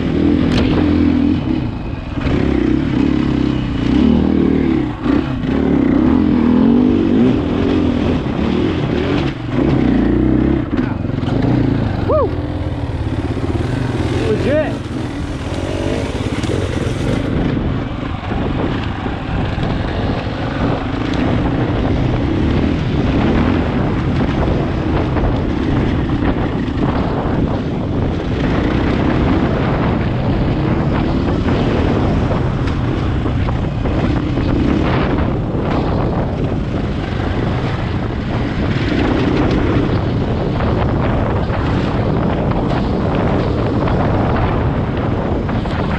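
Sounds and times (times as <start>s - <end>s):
dirt bike engine revving: 0.0s - 27.6s
wind noise on microphone: 0.0s - 45.9s.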